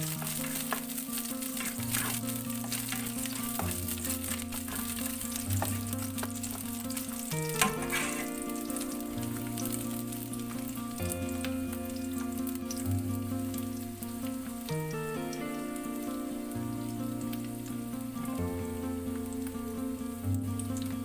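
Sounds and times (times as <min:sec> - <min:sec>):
spatula scraping wok: 0:00.0 - 0:14.6
background music: 0:00.0 - 0:21.0
garlic sizzling in hot oil: 0:00.0 - 0:21.0.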